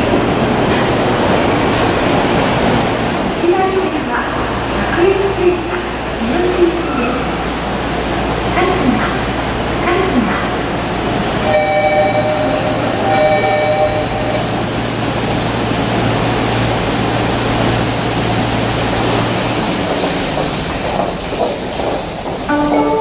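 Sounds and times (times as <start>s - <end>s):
stopped train humming: 0.0s - 23.0s
train doors opening: 11.1s - 23.0s
station noise: 11.3s - 15.4s, 20.9s - 23.0s.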